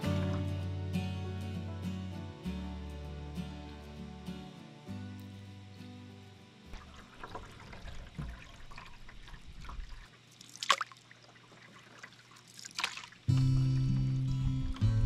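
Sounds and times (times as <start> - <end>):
music: 0.0 - 7.4, 13.3 - 15.0
paddle splashes: 6.7 - 13.6
water trickling and dripping: 6.7 - 14.9.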